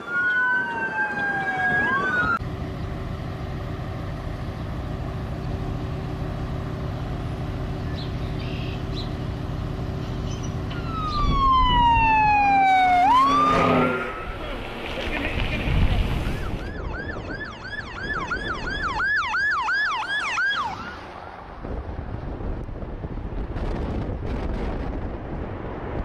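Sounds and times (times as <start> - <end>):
emergency vehicle siren wailing: 0.0 - 2.4, 10.6 - 14.6, 16.1 - 21.6.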